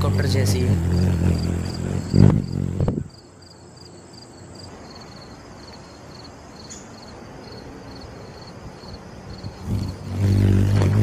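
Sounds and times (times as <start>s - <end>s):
hummingbird wings humming: 0.2s - 11.0s
high bird chirp: 6.6s - 7.0s.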